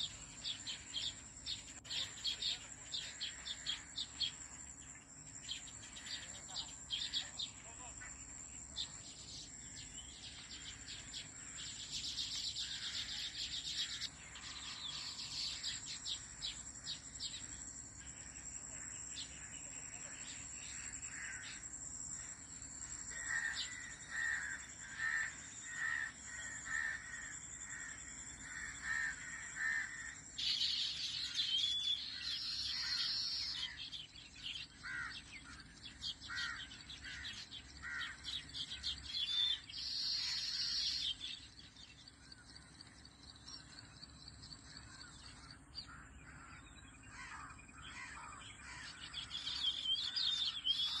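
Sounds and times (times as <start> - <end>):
harsh bird calls: 5.4 - 17.5, 18.1 - 51.0
birds chirping and whistling: 30.4 - 51.0.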